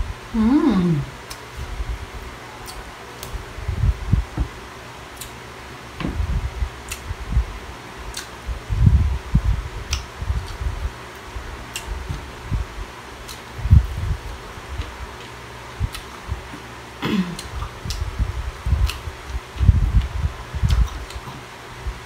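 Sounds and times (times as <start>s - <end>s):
electric fan running: 0.0s - 22.0s
mouth clicks and smacks chewing: 2.6s - 3.4s, 6.8s - 7.1s, 8.1s - 8.4s, 9.9s - 10.7s, 11.7s - 12.0s, 14.8s - 16.3s, 17.4s - 18.1s, 18.8s - 21.4s
soft low thumps: 3.6s - 4.6s, 6.0s - 7.6s, 8.5s - 10.9s, 13.6s - 14.9s, 17.1s - 22.0s.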